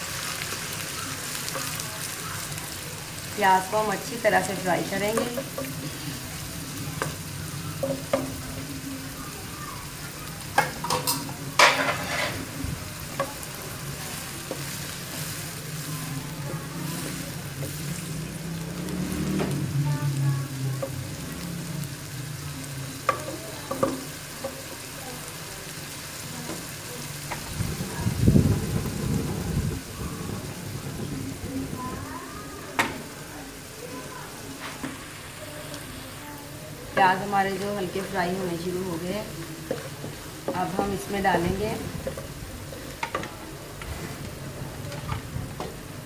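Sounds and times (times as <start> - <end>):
onions sizzling in oil: 0.0 - 46.0
spatula scraping and knocking pan: 4.1 - 6.2, 10.6 - 13.5, 36.9 - 45.8.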